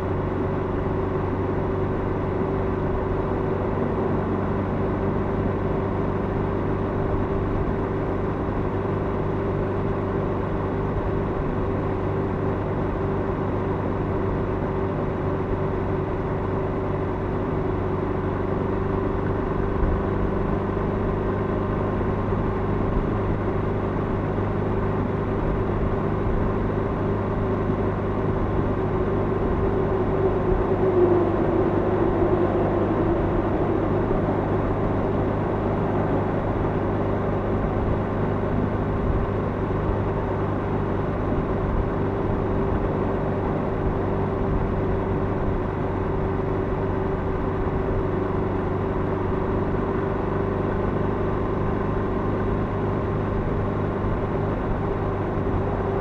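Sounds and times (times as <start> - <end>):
motorcycle engine in tunnel: 0.0 - 56.0
lorry passing: 28.2 - 36.5.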